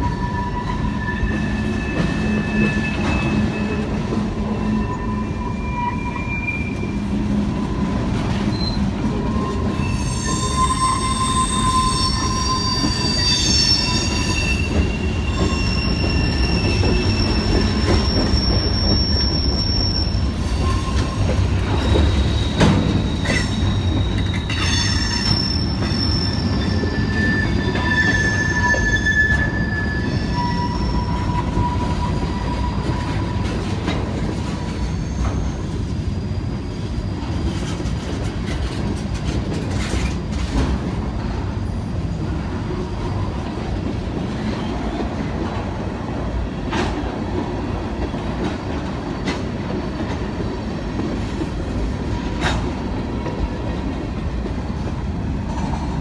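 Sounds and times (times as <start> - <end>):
high wheel squeals: 0.0 - 33.5, 34.7 - 37.6
train wheels rumbling on rail: 0.0 - 56.0.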